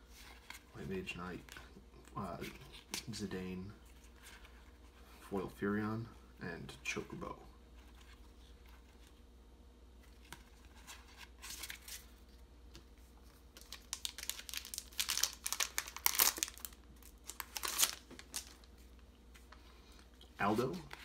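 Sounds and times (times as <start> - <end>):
foil wrapper crinkling and tearing: 13.6 - 18.7.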